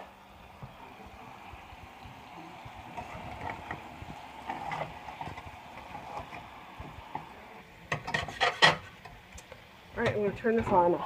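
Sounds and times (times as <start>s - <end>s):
saucepan simmering hiss: 0.0s - 11.0s
cookware clanking: 7.9s - 8.9s.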